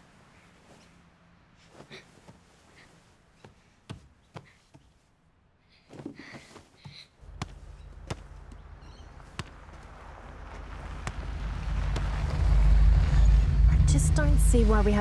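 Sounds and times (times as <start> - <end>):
soccer ball bouncing: 6.9 - 12.4
car engine approaching: 7.2 - 15.0.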